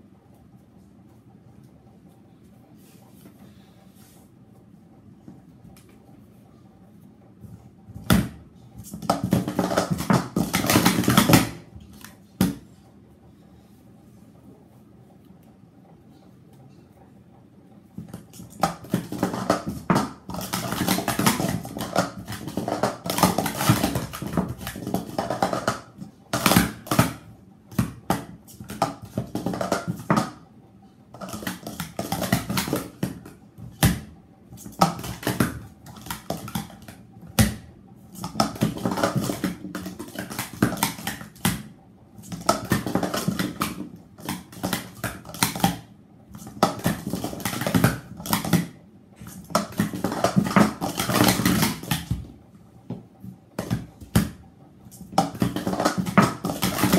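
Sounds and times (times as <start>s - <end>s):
plastic cups clattering and tapping: 8.8s - 12.6s, 18.0s - 30.4s, 31.1s - 52.3s, 53.6s - 56.9s.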